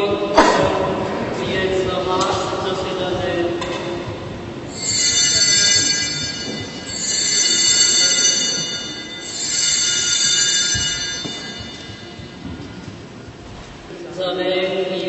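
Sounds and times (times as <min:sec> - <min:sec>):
altar bells jangling: 0:04.7 - 0:12.5.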